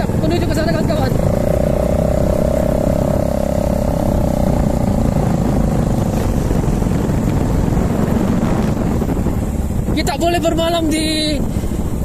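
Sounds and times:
motorcycle engine running: 0:00.0 - 0:12.0
wind on microphone: 0:00.0 - 0:12.0.

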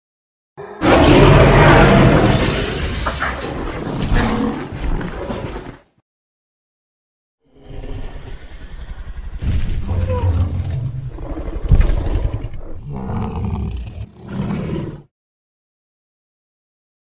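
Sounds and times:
dinosaur roar: 0:00.6 - 0:05.7, 0:07.5 - 0:15.1.

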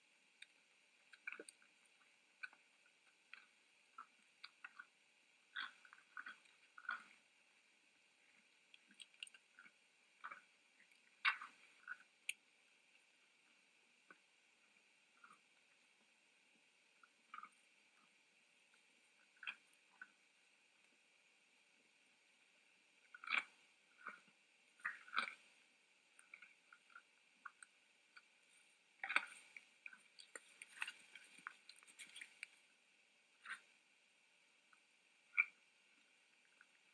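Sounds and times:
deer chewing crunchy feed: 0:29.1 - 0:32.6.

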